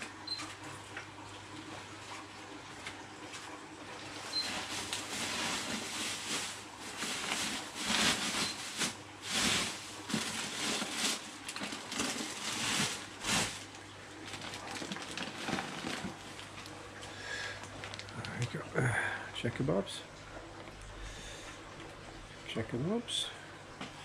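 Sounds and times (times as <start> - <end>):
plastic bags rustling: 4.0 - 18.6.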